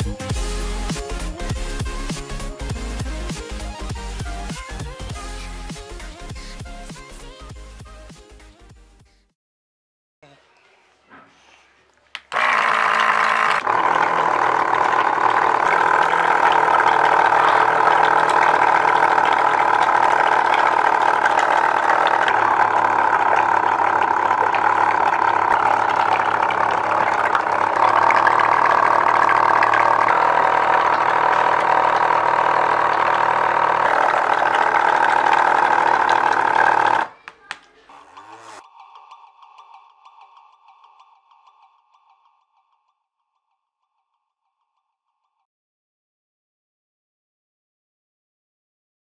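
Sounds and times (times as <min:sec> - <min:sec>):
small motor whining: 0:12.2 - 0:37.2
air bubbling in water: 0:14.6 - 0:37.0.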